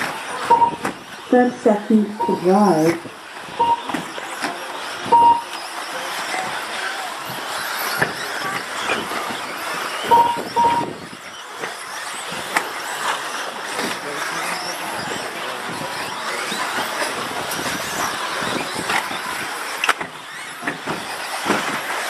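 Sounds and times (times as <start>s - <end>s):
hum of rc car motors and tyres: 0.0s - 22.0s
short beeps: 0.5s - 0.8s, 2.0s - 2.8s, 3.6s - 3.9s, 5.1s - 5.5s, 10.1s - 10.9s.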